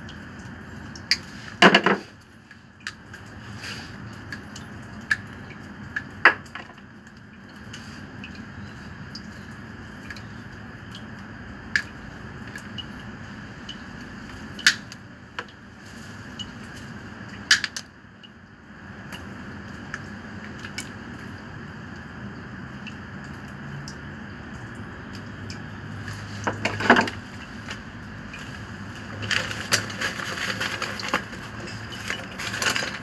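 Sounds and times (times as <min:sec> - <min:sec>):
steady background noise: 0:00.0 - 0:33.0.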